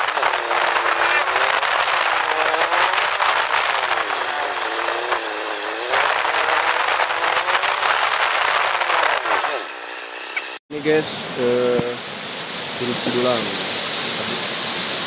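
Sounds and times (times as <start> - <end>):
wind rush on microphone: 0.0 - 9.6
motorcycle engine revving: 0.0 - 12.0.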